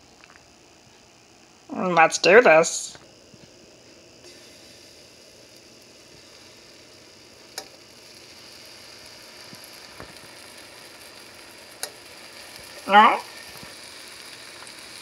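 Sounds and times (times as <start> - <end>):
frying pan sizzling: 4.2 - 15.0.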